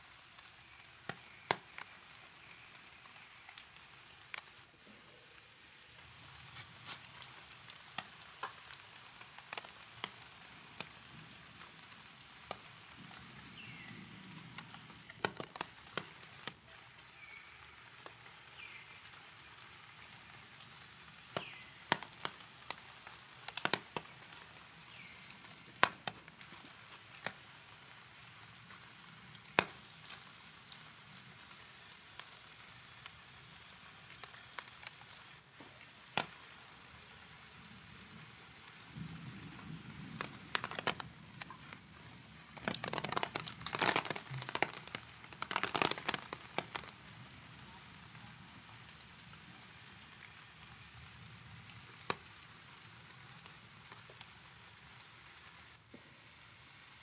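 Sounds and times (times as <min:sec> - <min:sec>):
light rain hiss: 0:00.0 - 0:57.0
raindrops tapping on hard surfaces: 0:00.0 - 0:57.0.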